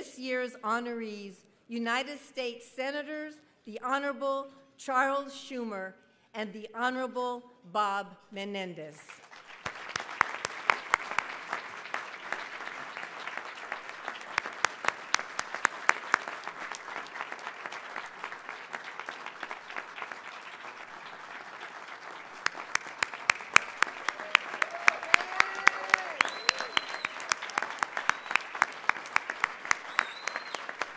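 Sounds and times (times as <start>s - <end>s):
audience applauding: 9.2s - 30.9s.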